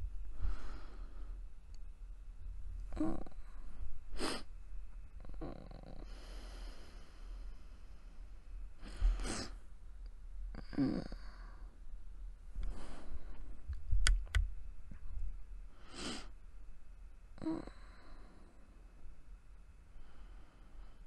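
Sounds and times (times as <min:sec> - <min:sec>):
woman breathing close to microphone: 0:00.0 - 0:01.6, 0:05.3 - 0:09.7, 0:12.5 - 0:13.7, 0:15.6 - 0:16.4, 0:17.4 - 0:18.8, 0:19.9 - 0:21.0.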